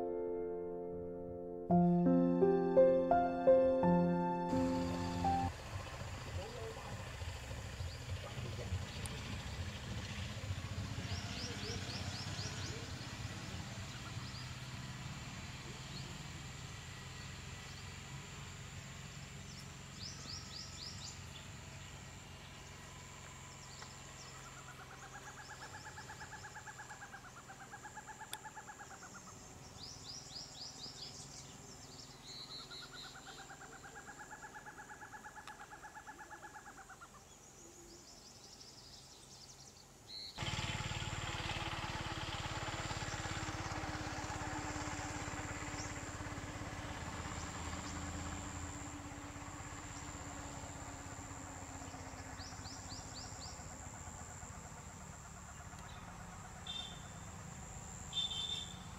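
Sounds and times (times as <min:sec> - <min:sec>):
owlet calling in pulsed notes: 0:00.0 - 0:05.5
road traffic rumble: 0:01.7 - 0:35.6, 0:40.4 - 0:58.9
small birds chirping: 0:07.7 - 0:14.9, 0:16.9 - 0:40.4, 0:45.4 - 0:58.9.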